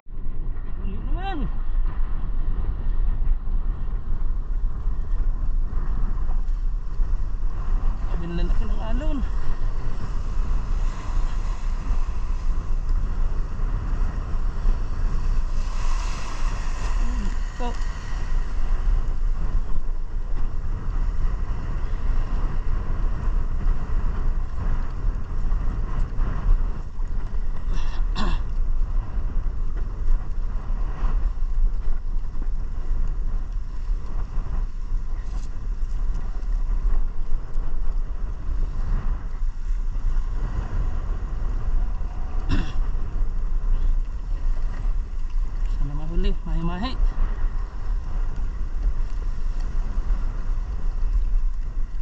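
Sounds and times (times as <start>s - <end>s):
wind rushing on microphone: 0.0s - 52.0s
water spray: 14.5s - 19.0s.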